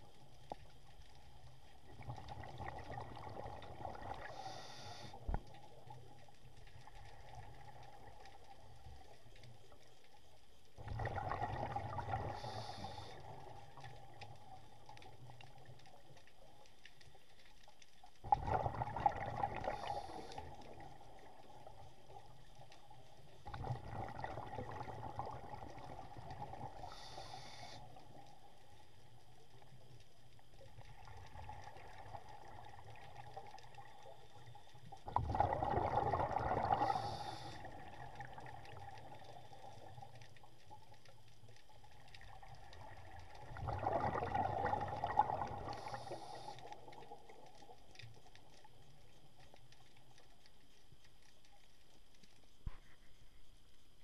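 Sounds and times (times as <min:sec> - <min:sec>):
regulator hiss: 0:04.2 - 0:05.3, 0:12.3 - 0:13.4, 0:19.7 - 0:20.6, 0:26.8 - 0:28.2, 0:36.8 - 0:37.9, 0:45.8 - 0:46.8
diver bubbling exhalations: 0:35.1 - 0:37.2, 0:43.5 - 0:45.8.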